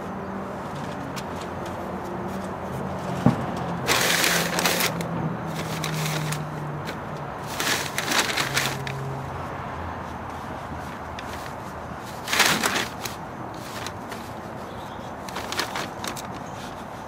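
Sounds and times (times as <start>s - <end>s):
carpet rustling and scraping: 3.9s - 9.0s, 10.1s - 14.6s.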